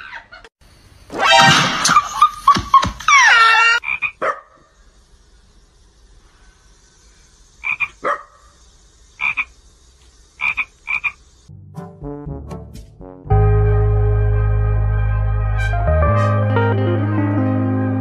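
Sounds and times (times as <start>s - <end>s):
frog croaking: 3.7s - 4.3s, 7.6s - 11.3s.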